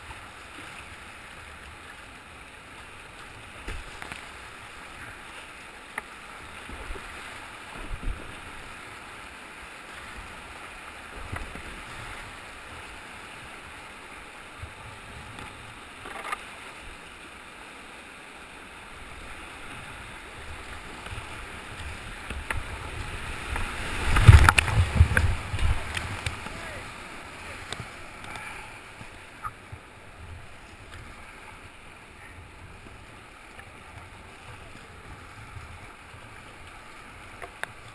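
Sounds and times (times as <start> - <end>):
water splashing on hull: 0.0 - 37.9
river rapids rushing: 15.7 - 37.9.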